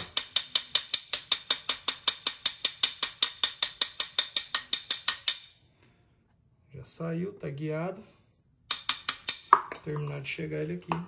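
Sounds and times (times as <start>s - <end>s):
hammer tapping steel pin: 0.0s - 5.5s, 8.7s - 10.2s.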